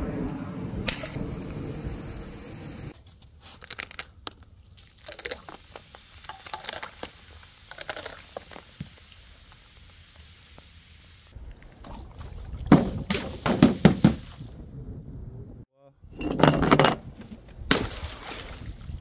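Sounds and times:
something brittle being crunched: 0:03.4 - 0:05.6, 0:07.7 - 0:08.6.

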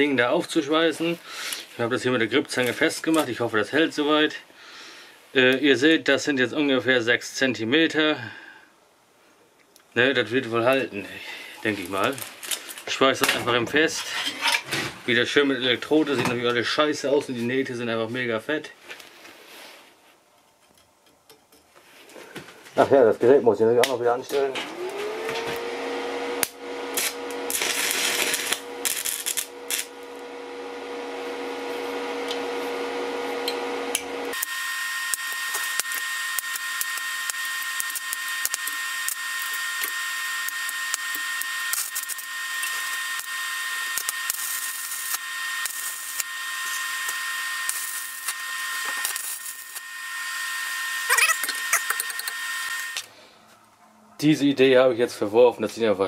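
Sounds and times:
welding machine hum: 0:11.3 - 0:13.0, 0:24.4 - 0:53.1
welding arc crackling and popping: 0:11.6 - 0:13.9, 0:26.4 - 0:30.4, 0:33.4 - 0:53.1.

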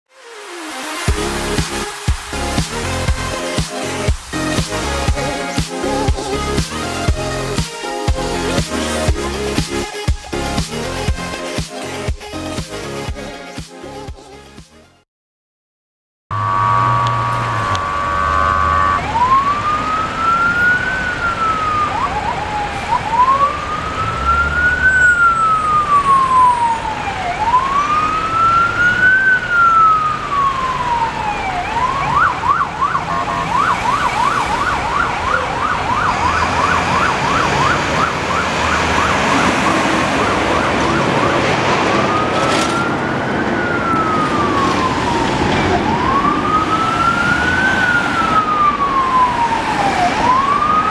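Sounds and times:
ambulance siren: 0:00.1 - 0:12.2, 0:16.3 - 0:50.9
horn blast: 0:16.3 - 0:19.2.

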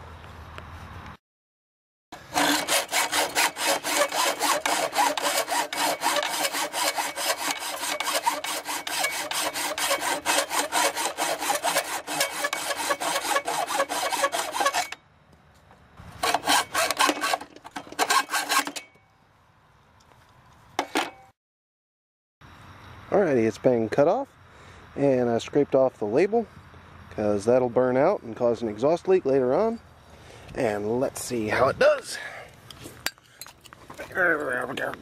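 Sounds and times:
hacksaw cutting metal pipe: 0:02.2 - 0:15.0, 0:16.2 - 0:19.0.

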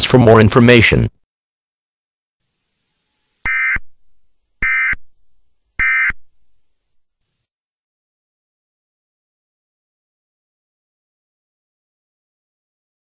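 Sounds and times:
digital data tone bursts: 0:03.2 - 0:05.2, 0:05.8 - 0:06.3.

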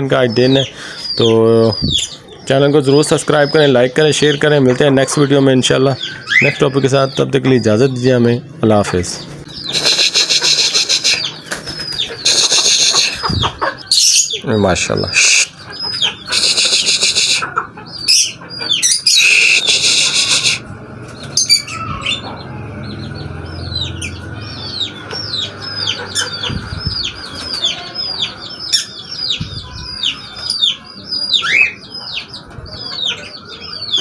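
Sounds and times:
parrots chirping: 0:09.4 - 0:20.6, 0:21.2 - 0:34.0.

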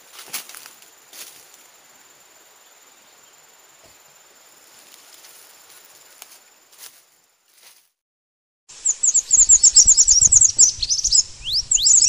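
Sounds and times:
forest hiss: 0:00.0 - 0:07.8, 0:08.7 - 0:11.6
high insect drone: 0:00.0 - 0:07.8.

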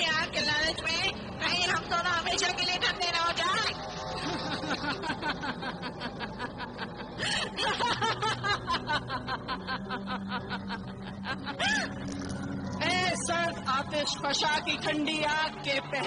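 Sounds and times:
woman laughing: 0:04.2 - 0:12.0.

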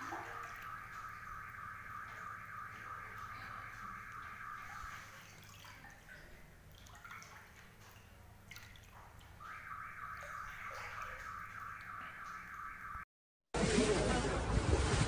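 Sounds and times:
low steady hum: 0:00.0 - 0:12.8
water dripping and trickling: 0:00.0 - 0:13.0.

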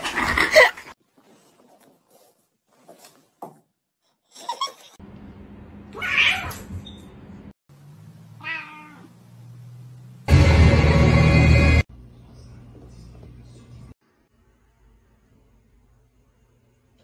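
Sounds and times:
cat meowing: 0:08.4 - 0:09.1.

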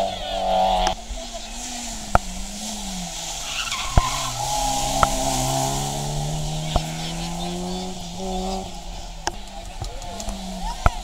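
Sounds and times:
rally car engine accelerating: 0:00.0 - 0:11.0
tyres squealing: 0:03.4 - 0:08.7.

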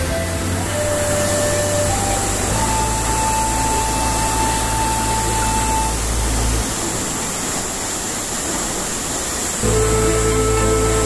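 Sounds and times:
held background music note: 0:00.0 - 0:06.7, 0:09.6 - 0:11.0
low bass drone: 0:00.0 - 0:06.9, 0:09.6 - 0:11.0
waterfall roaring: 0:00.0 - 0:11.0.

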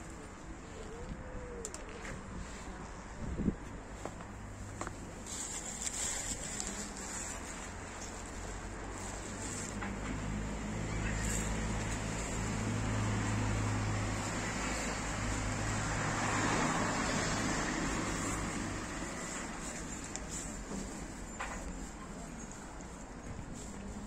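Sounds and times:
low engine hum of traffic: 0:00.0 - 0:24.0
vehicle passing: 0:06.4 - 0:21.2.

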